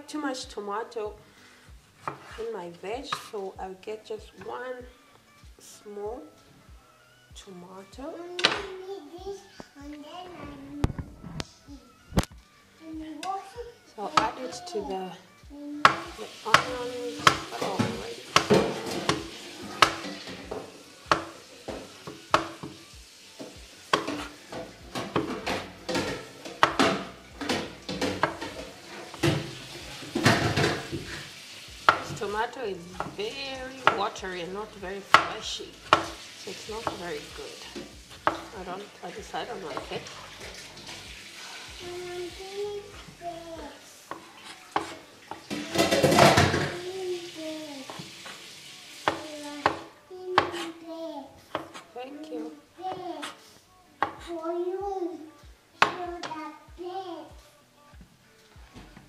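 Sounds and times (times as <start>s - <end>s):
onions sizzling in a pan: 13.9s - 56.7s.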